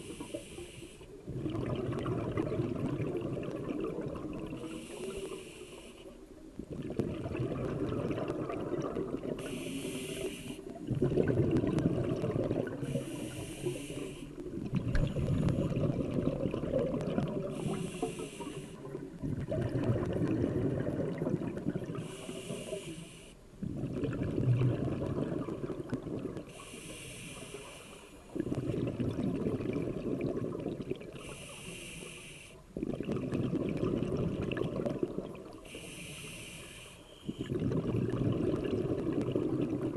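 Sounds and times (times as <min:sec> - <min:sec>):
regulator inhale hiss: 0:00.0 - 0:01.2, 0:04.6 - 0:06.2, 0:09.4 - 0:10.8, 0:12.8 - 0:14.5, 0:17.5 - 0:18.9, 0:22.0 - 0:23.4, 0:26.5 - 0:28.4, 0:31.2 - 0:32.7, 0:35.6 - 0:37.5
exhaled bubbles rumbling: 0:01.1 - 0:05.2, 0:06.4 - 0:22.7, 0:23.6 - 0:26.6, 0:28.3 - 0:31.4, 0:32.7 - 0:35.6, 0:37.3 - 0:39.9.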